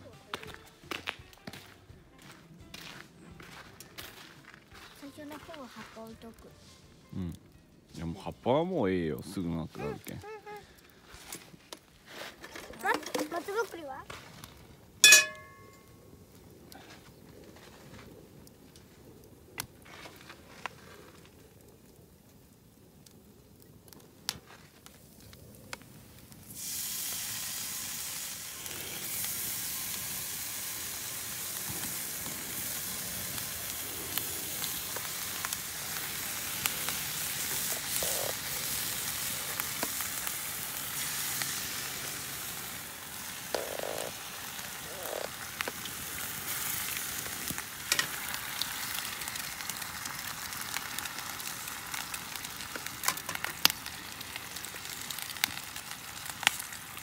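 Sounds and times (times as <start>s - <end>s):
eggs sizzling in oil: 15.0s - 15.9s, 26.2s - 57.0s.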